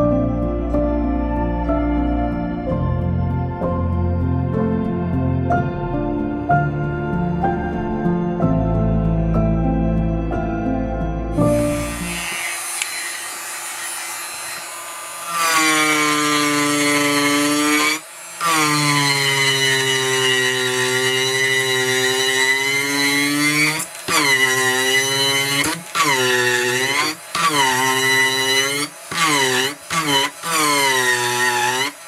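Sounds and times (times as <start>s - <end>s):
rotary tool grinding wood: 11.5s - 32.0s.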